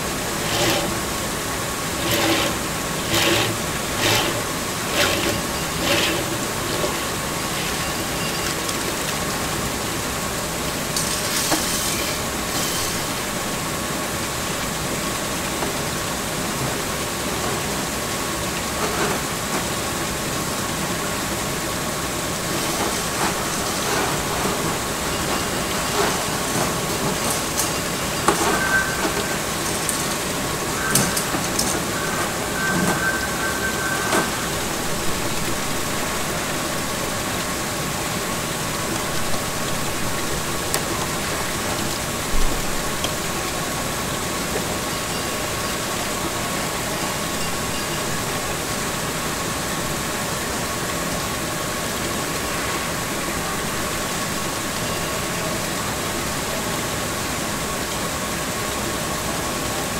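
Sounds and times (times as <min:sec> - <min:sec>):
machine whining: 0:00.0 - 0:08.6.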